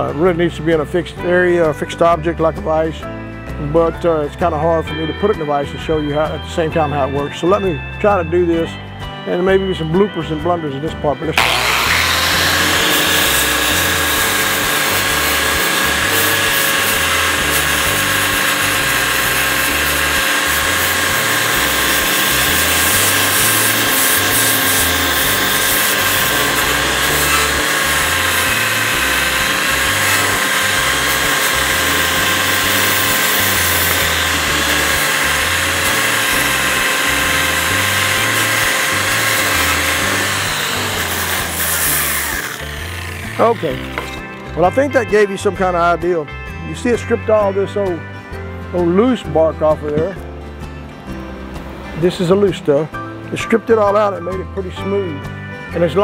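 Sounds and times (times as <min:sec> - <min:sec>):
angle grinder wire wheel whining: 0:11.3 - 0:45.8
wire wheel stripping bark: 0:11.4 - 0:44.6.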